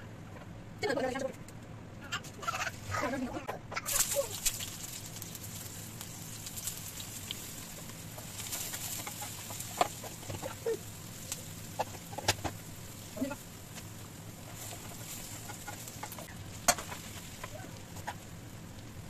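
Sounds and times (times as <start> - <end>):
onions sizzling in oil: 3.9 - 19.0
spatula scraping and knocking on pan: 7.7 - 10.6, 11.7 - 12.6, 13.8 - 18.3.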